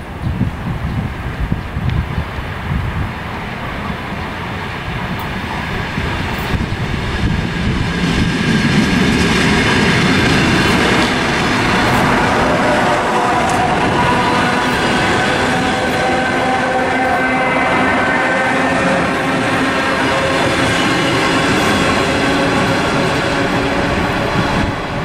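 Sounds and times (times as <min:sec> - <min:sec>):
train wheels clattering on rail: 0:05.1 - 0:17.4, 0:18.7 - 0:25.0
traction motor whine: 0:09.6 - 0:25.0.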